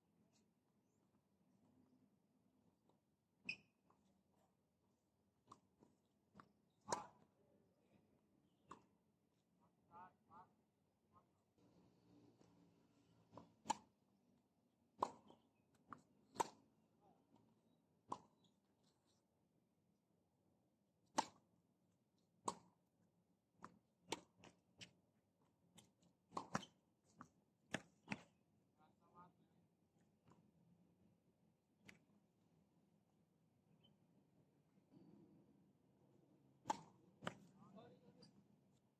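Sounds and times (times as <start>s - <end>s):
racket striking ball: 13.3s - 13.9s, 15.0s - 15.4s, 16.3s - 16.6s, 36.6s - 37.5s
tennis ball bouncing on hard court: 15.0s - 16.6s, 25.8s - 28.3s, 36.6s - 37.5s.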